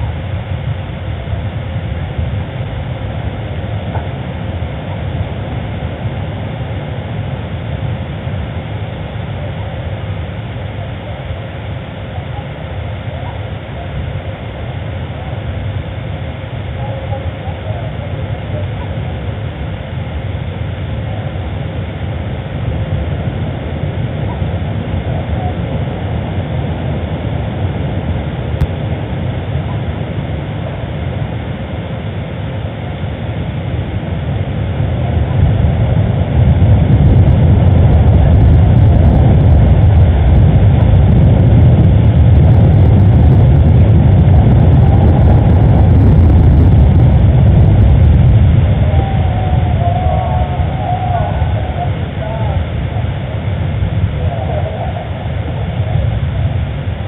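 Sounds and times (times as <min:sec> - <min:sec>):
loud low rumble: 0:00.0 - 0:57.0.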